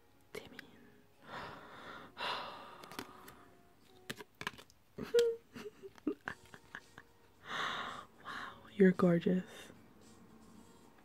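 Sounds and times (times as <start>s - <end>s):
photo cards being shuffled: 2.7s - 6.6s
woman whimpering hums: 5.0s - 6.3s.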